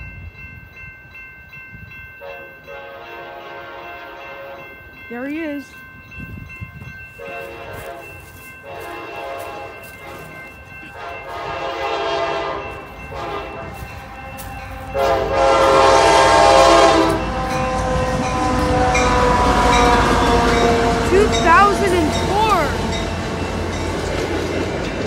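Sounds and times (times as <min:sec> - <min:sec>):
train rumbling past: 0:00.0 - 0:25.0
locomotive air horn blasts: 0:02.2 - 0:04.6, 0:07.2 - 0:08.1, 0:08.7 - 0:10.3, 0:11.0 - 0:13.8, 0:14.9 - 0:22.9.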